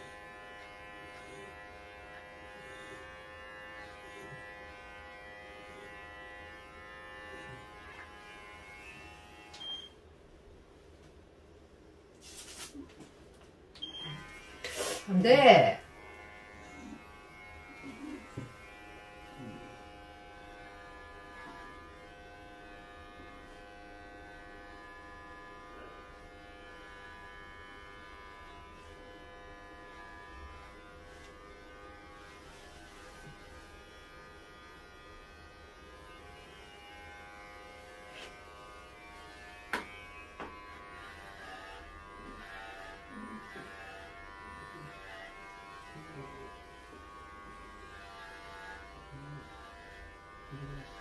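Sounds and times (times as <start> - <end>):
electric hair clippers buzzing: 0.0 - 10.0, 13.8 - 51.0.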